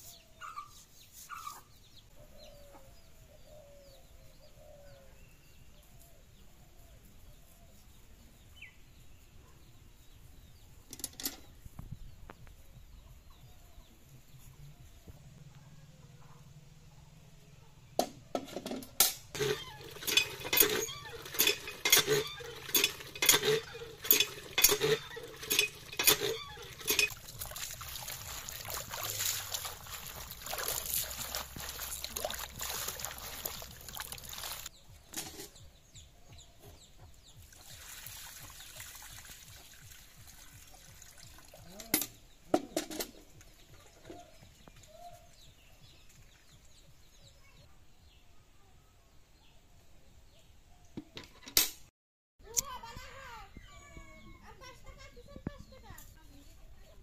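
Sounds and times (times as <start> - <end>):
hand pump strokes: 19.3 - 34.7
water splashing into metal pot: 19.4 - 34.7.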